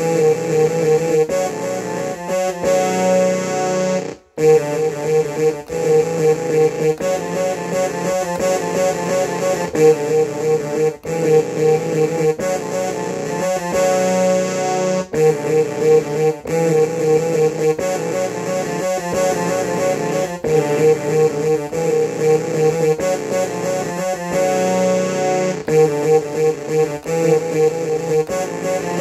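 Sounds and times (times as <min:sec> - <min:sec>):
electronic keyboard playing chords: 0:00.0 - 0:29.0.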